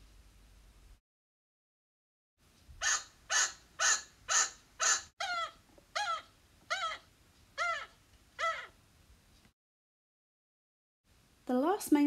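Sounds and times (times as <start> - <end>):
chinchilla alarm calls: 2.8 - 8.8.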